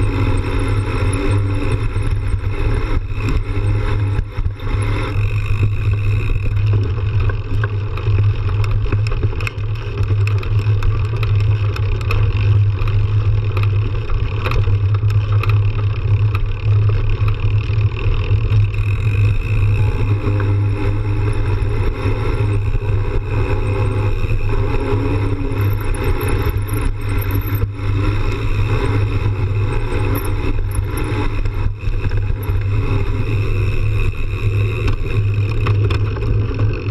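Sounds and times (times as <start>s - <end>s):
bike clicks and knocks: 0.0s - 36.9s
bike tyre rumbling on dirt and gravel: 0.0s - 36.9s.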